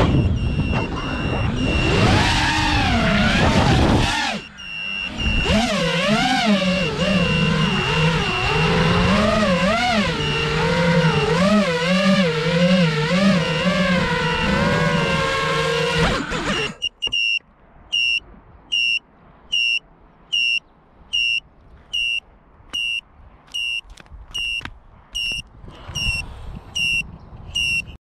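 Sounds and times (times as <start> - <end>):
short high beeps: 0.0 - 2.1, 4.4 - 5.9, 16.5 - 28.0
wavering pitched tone: 0.0 - 17.0.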